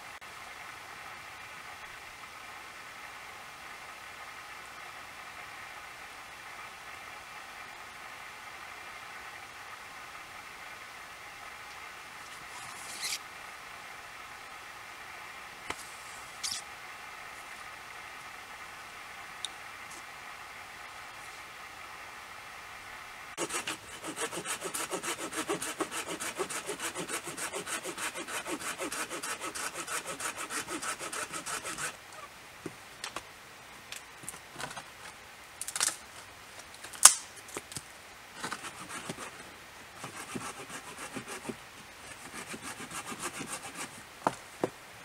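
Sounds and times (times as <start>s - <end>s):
hand saw cutting wood: 23.4s - 32.0s, 38.4s - 39.4s, 40.0s - 44.0s.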